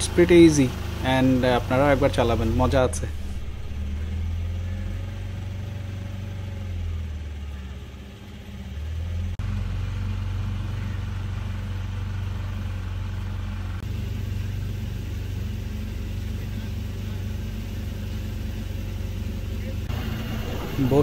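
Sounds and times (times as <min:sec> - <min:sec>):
motorboat engine humming: 0:00.0 - 0:21.0.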